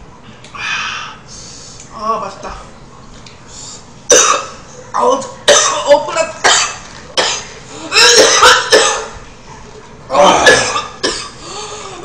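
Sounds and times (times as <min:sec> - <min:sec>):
woman coughing hard: 0:04.1 - 0:04.6, 0:05.5 - 0:09.2, 0:10.2 - 0:11.4
woman clearing throat: 0:05.5 - 0:09.1, 0:10.1 - 0:11.4.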